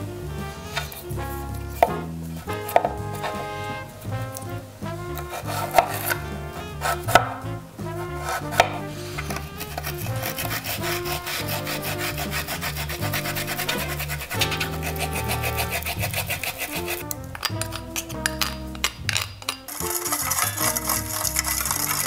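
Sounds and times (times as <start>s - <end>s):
ginger scraping on metal grater: 5.2s - 6.2s, 8.2s - 18.4s, 19.7s - 22.0s
knife cutting ginger: 5.2s - 7.4s, 8.2s - 22.0s.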